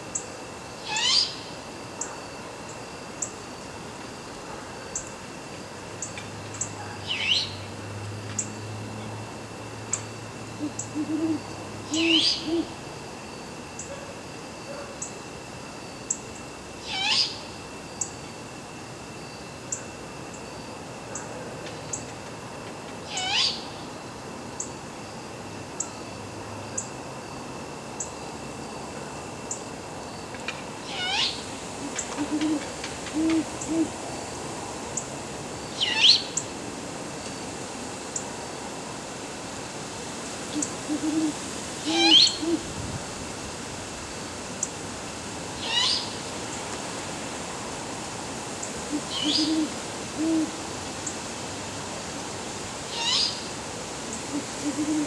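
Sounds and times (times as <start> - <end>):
owls hooting: 0.8 - 1.4, 10.5 - 12.8, 16.8 - 17.4, 23.1 - 23.6, 30.8 - 34.0, 40.5 - 42.8, 48.9 - 50.6, 54.3 - 55.0.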